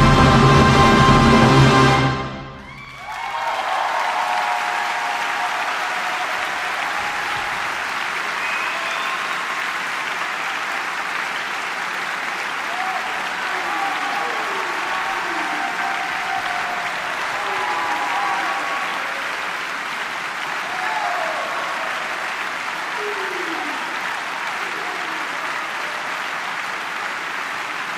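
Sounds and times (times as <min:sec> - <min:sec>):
audience applauding: 0:00.0 - 0:27.9
voices calling out and cheering: 0:02.6 - 0:09.8, 0:12.6 - 0:26.6.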